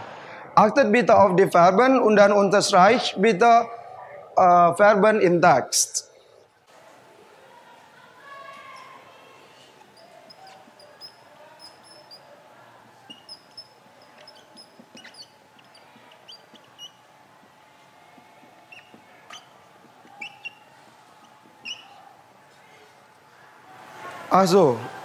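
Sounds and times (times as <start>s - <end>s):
whiteboard marker squeaking: 8.5s - 17.2s, 18.1s - 22.1s.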